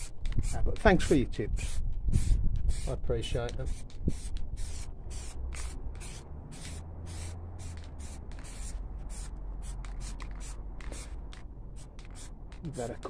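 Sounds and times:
aerosol can spraying hisses: 1.6 - 3.0, 3.6 - 12.3.

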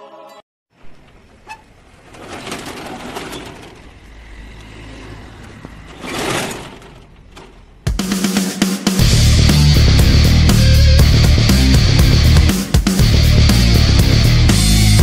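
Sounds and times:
metal shutter slats rattling: 1.3 - 4.3, 5.8 - 7.9.

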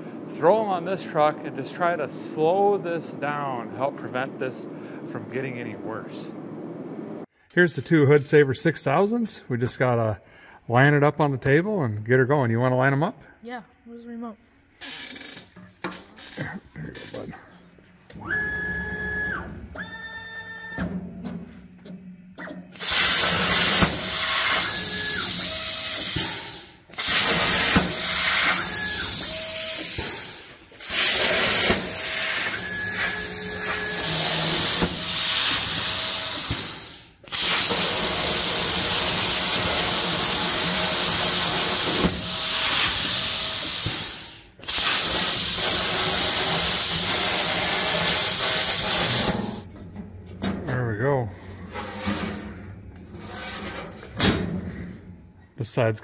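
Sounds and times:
plasma torch cutting steel: 22.8 - 49.7.

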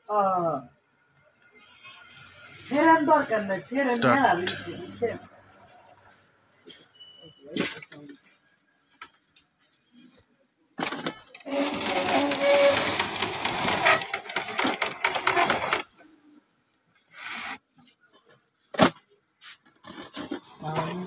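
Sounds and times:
printer mechanism rattling whir: 11.4 - 15.9.

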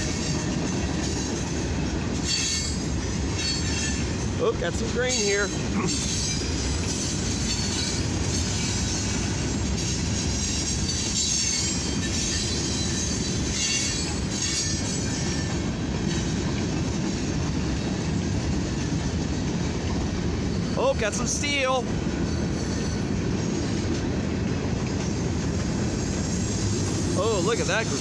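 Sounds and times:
steel wheels rumbling on rail: 0.0 - 28.0
high wheel squeal: 2.2 - 4.4, 5.1 - 17.3, 22.2 - 23.2, 25.1 - 28.0.

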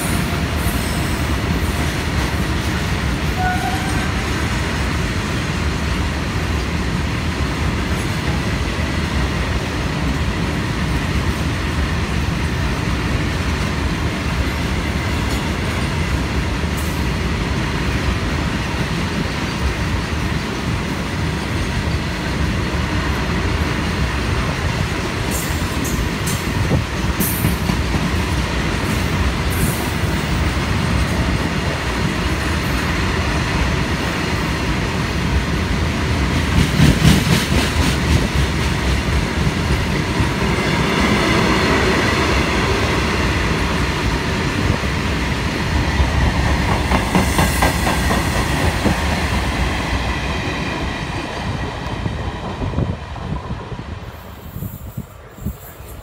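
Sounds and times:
train wheels clattering over rail joints: 36.1 - 40.4, 46.0 - 51.0.

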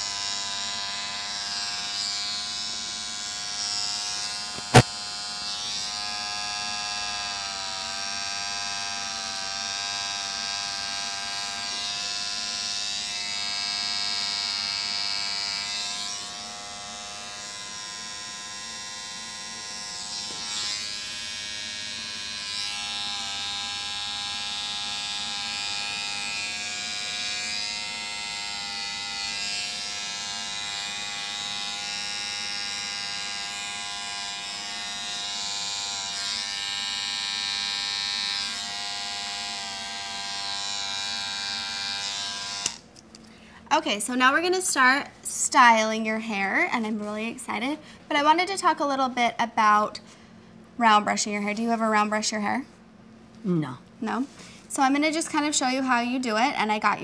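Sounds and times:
electric hair trimmer buzzing: 0.0 - 42.9.

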